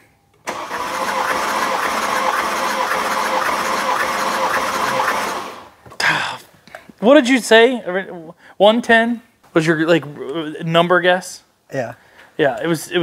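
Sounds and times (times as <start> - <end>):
engine cranking with starter whine: 0.4 - 5.8.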